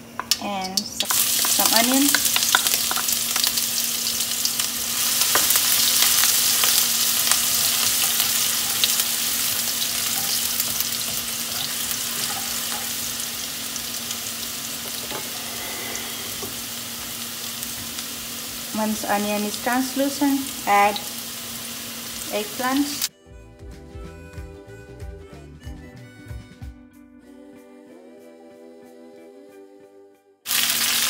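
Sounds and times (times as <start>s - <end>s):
onion sizzling in hot oil: 0.0s - 23.1s, 30.5s - 31.0s.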